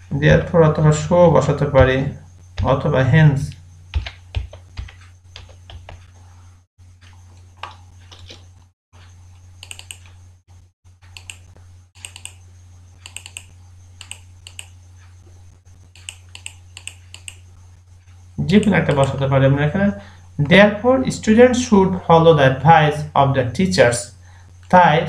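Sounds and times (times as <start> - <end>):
steady low hum: 0.0 - 25.0
computer keyboard typing: 3.9 - 6.1, 9.6 - 10.1, 11.1 - 12.4, 13.0 - 14.8, 16.0 - 17.4, 18.6 - 19.2.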